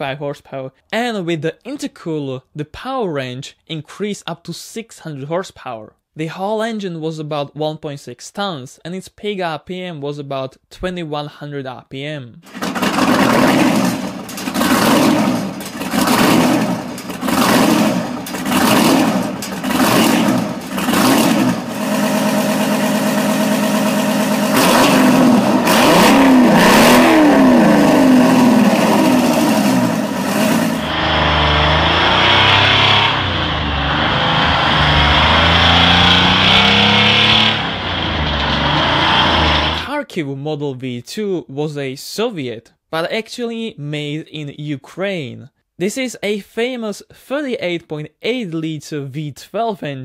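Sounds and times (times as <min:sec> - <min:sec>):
diesel engine revving: 0:12.5 - 0:39.9
truck engine under load: 0:12.5 - 0:39.9.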